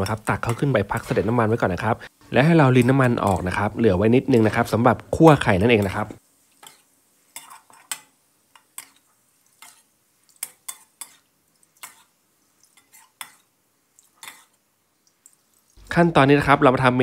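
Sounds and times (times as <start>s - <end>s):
metal spatula scraping a wok: 5.8s - 13.5s, 14.2s - 14.6s.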